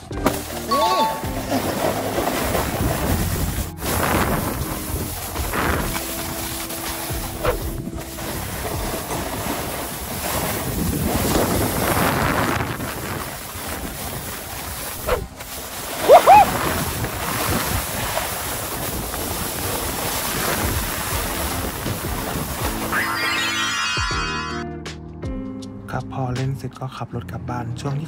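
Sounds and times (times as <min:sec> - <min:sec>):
snowboard scraping on snow: 0:00.0 - 0:23.4
wind buffeting microphone: 0:01.3 - 0:22.9
rising squeal: 0:22.9 - 0:24.6.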